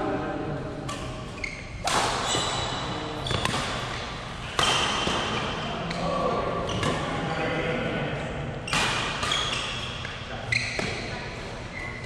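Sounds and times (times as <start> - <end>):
shoes squeaking on court floor: 0.8 - 6.0, 8.7 - 12.0
racket striking shuttlecock: 1.8 - 5.6.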